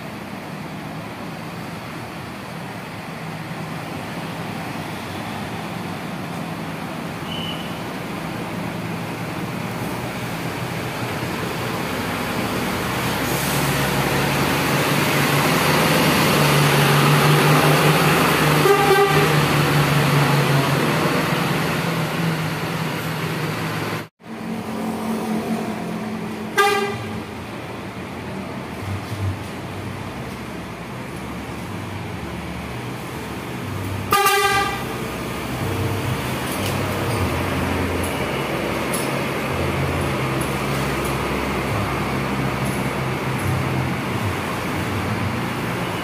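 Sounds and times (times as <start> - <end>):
bus diesel engine: 0.0 - 46.0
bus horn toot: 7.2 - 7.9, 18.5 - 19.5, 26.5 - 27.3, 34.1 - 35.0.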